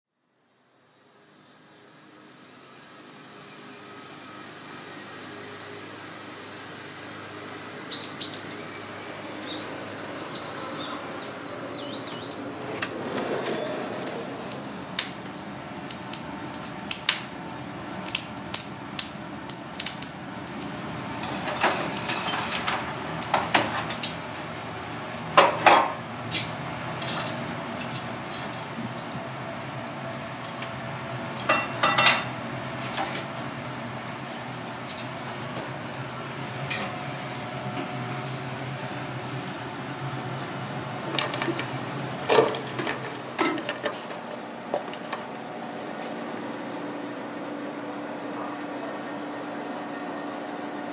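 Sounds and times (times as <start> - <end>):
bird singing: 0.2 - 15.6
charcoal clinking on metal: 18.1 - 24.2, 31.4 - 32.3.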